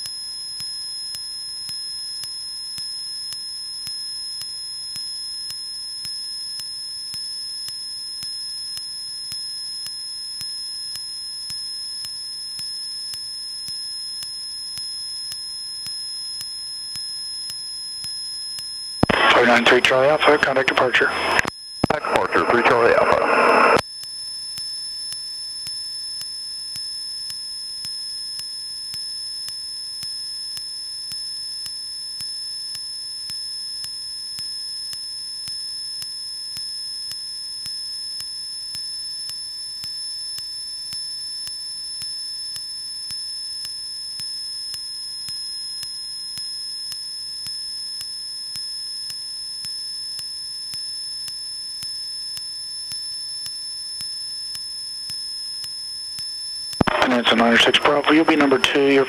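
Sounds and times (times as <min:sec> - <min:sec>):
high-pitched radio tones: 0:19.0 - 0:23.8, 0:56.8 - 0:59.0.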